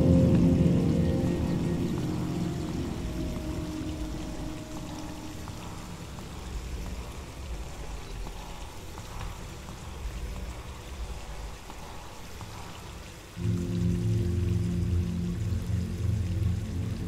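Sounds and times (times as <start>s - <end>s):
music with low sustained tones: 0.0s - 8.4s, 13.4s - 17.0s
steady rushing noise: 0.0s - 17.0s
faint ticks: 1.9s - 13.4s.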